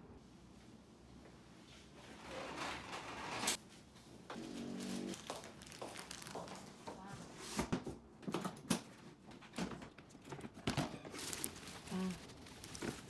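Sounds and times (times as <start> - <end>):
plastic packaging crinkling: 5.1 - 6.8, 11.1 - 13.0.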